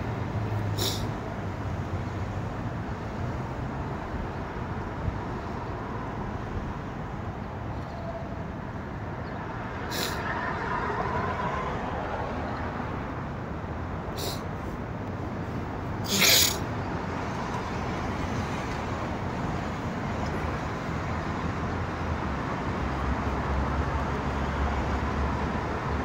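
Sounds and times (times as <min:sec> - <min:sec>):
passing cars hum: 0:00.0 - 0:26.0
brief high hisses: 0:00.8 - 0:01.1, 0:09.9 - 0:10.2, 0:14.2 - 0:14.5, 0:16.1 - 0:16.6.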